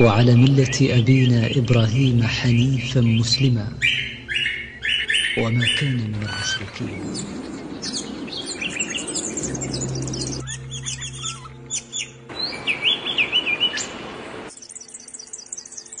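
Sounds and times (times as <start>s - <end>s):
bird warbling phrase: 0.0s - 10.4s
songbirds chirping: 0.0s - 16.0s.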